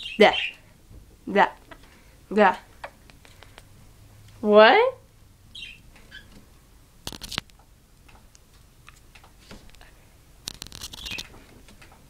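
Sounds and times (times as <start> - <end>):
beak tapping on camera: 10.4 - 11.3.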